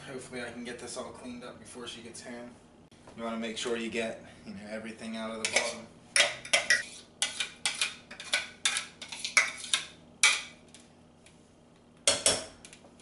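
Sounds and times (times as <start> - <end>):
metal spoon scraping blender jar: 5.4 - 5.8, 6.4 - 9.9.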